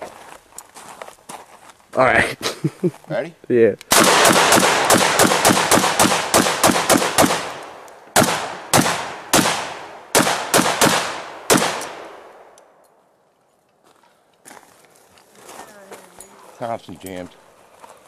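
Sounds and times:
gunshots with echo: 0:03.9 - 0:07.6, 0:08.2 - 0:12.5.

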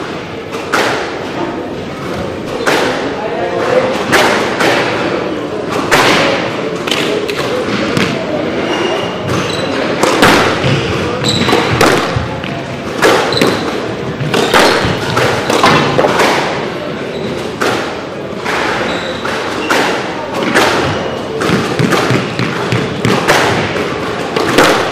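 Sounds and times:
squash ball hitting rackets and walls: 0:00.0 - 0:24.9
shoes squeaking on wooden floor: 0:08.5 - 0:10.0, 0:10.6 - 0:12.6, 0:13.2 - 0:16.0, 0:17.0 - 0:17.6, 0:18.7 - 0:20.0, 0:20.8 - 0:23.0.

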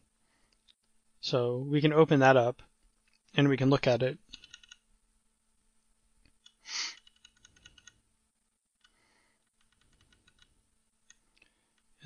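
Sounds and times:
keyboard clicking: 0:04.3 - 0:04.8, 0:06.4 - 0:08.0, 0:08.8 - 0:10.5.

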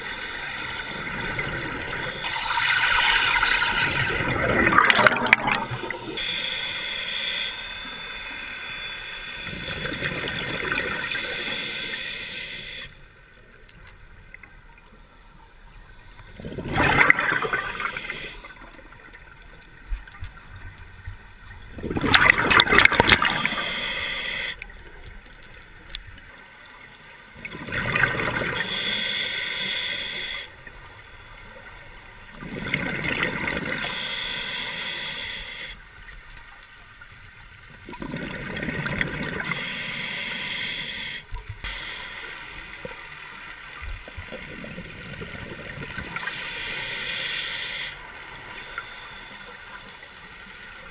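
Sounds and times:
exhaled bubbles gurgling: 0:00.0 - 0:06.2, 0:09.4 - 0:11.4, 0:16.3 - 0:18.6, 0:21.7 - 0:24.5, 0:27.4 - 0:28.7, 0:32.3 - 0:34.0, 0:37.8 - 0:39.6
regulator hiss: 0:00.0 - 0:13.2, 0:17.0 - 0:18.7, 0:22.2 - 0:24.7, 0:28.5 - 0:31.7, 0:33.5 - 0:35.9, 0:39.3 - 0:43.8, 0:46.0 - 0:50.9.

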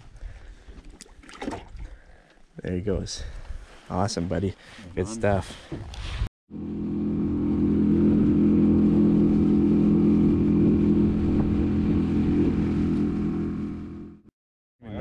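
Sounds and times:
outboard motor running: 0:06.5 - 0:14.3.

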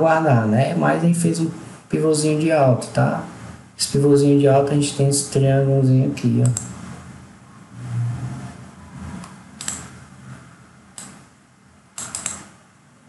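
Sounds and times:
computer mouse clicking: 0:06.4 - 0:06.7, 0:09.2 - 0:09.9, 0:11.0 - 0:11.2, 0:12.0 - 0:12.5.

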